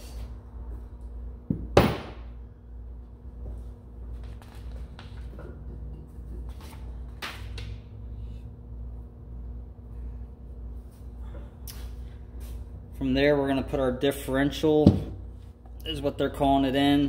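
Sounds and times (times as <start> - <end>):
low electrical hum: 0.0 - 17.0
tools knocking on workbench: 14.8 - 15.2.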